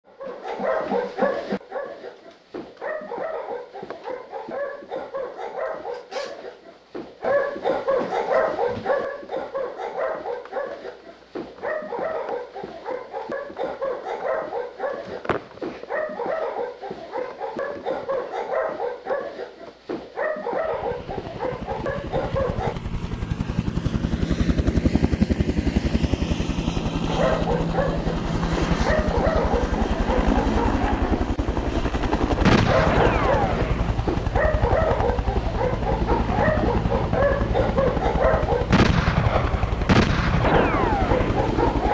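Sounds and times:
dogs barking and yelping: 0:00.1 - 0:23.6, 0:26.8 - 0:38.8, 0:40.4 - 0:41.9
low fast steady beating: 0:21.0 - 0:41.9.

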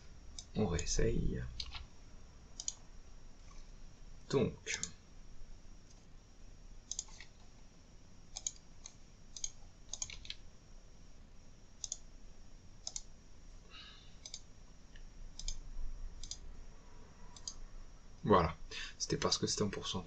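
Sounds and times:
computer mouse clicking: 0:01.6 - 0:01.9, 0:02.6 - 0:02.8, 0:04.7 - 0:05.0, 0:06.9 - 0:07.5, 0:08.3 - 0:10.4, 0:11.8 - 0:12.1, 0:12.8 - 0:13.1, 0:14.2 - 0:15.6, 0:16.2 - 0:16.4, 0:17.3 - 0:17.6.

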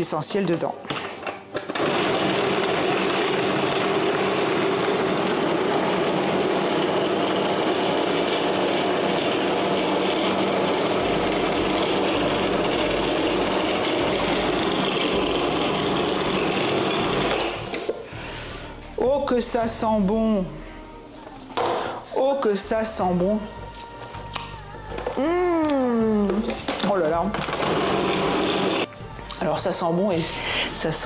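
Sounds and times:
food processor running: 0:01.6 - 0:17.9, 0:26.7 - 0:28.9.

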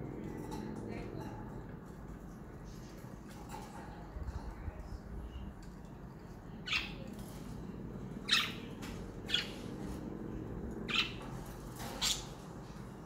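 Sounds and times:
steady low hum: 0:00.0 - 0:13.0
budgerigars chirping: 0:10.9 - 0:11.3.

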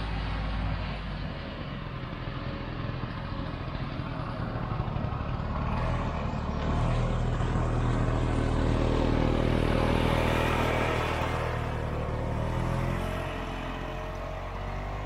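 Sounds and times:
snowmobile engine passing by: 0:05.6 - 0:15.0.

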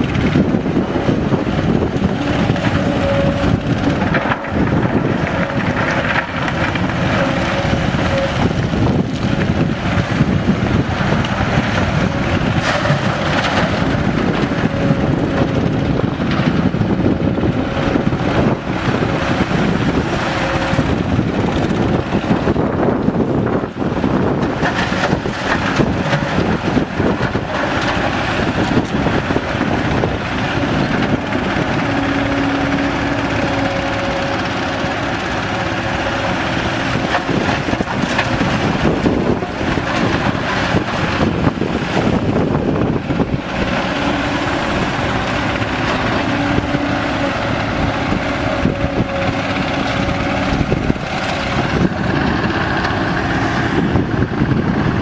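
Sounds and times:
excavator diesel engine: 0:00.0 - 0:55.0
hydraulic drone: 0:25.8 - 0:55.0.

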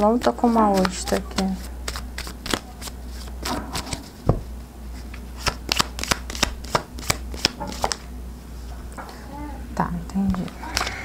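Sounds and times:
cards being shuffled: 0:00.0 - 0:08.1.

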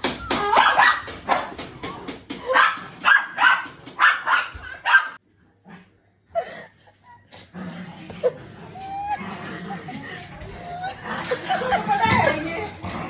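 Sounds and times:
dog barking: 0:00.4 - 0:01.5, 0:02.4 - 0:05.2.

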